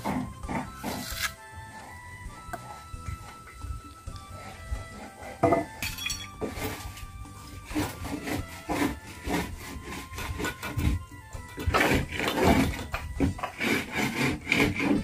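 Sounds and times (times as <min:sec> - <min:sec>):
wooden planks scraping and knocking: 0:00.0 - 0:01.4, 0:04.5 - 0:15.0
background music: 0:00.0 - 0:15.0.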